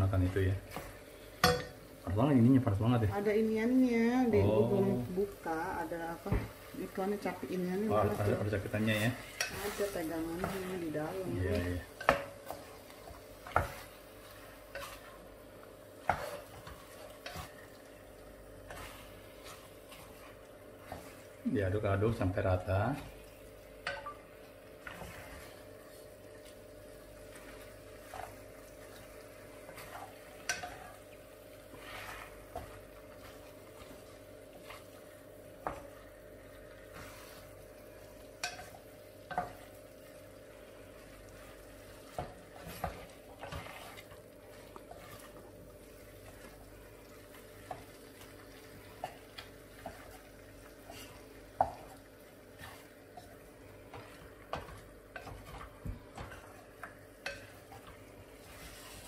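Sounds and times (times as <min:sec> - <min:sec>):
meat sizzling: 0:00.0 - 0:59.0
utensil scraping a pot: 0:31.6 - 0:35.0, 0:41.9 - 0:45.5.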